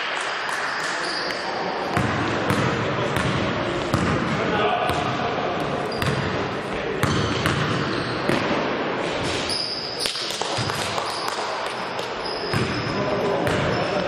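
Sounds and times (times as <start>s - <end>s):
players chattering: 0.3s - 8.3s, 11.4s - 14.0s
shoe squeaks: 0.7s - 1.6s, 7.8s - 8.3s, 9.2s - 11.4s, 12.2s - 13.0s
basketball bouncing on court: 1.9s - 6.4s, 7.0s - 8.6s, 10.0s - 11.4s, 12.2s - 13.8s.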